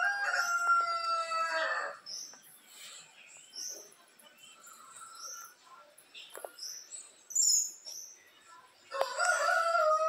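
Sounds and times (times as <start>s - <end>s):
rooster crowing: 0.0s - 2.0s, 8.9s - 10.0s
small birds chirping faintly: 0.0s - 10.0s.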